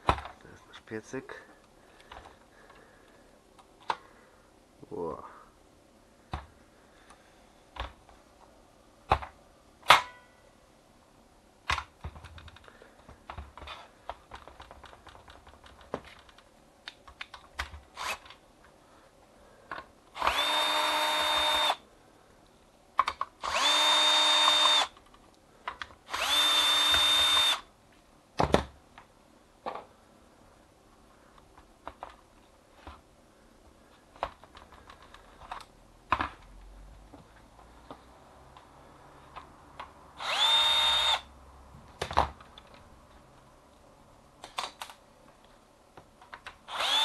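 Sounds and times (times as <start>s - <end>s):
cordless drill running: 18.0s - 18.2s, 20.2s - 21.8s, 23.4s - 24.9s, 26.1s - 27.6s, 40.2s - 41.3s, 46.7s - 47.0s.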